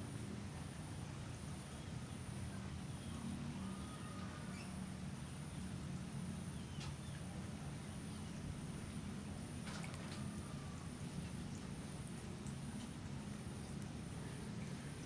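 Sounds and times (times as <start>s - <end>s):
faint bird chirps: 2.9s - 4.9s.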